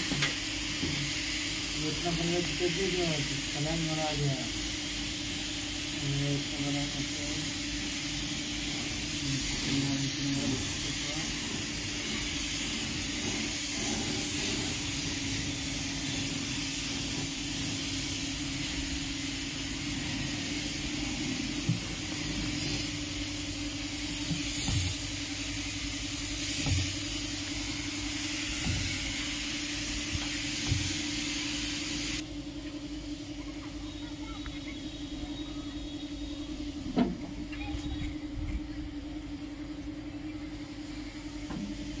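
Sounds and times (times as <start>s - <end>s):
spray gun hissing: 0.0s - 32.2s
steady mechanical hum: 0.0s - 42.0s.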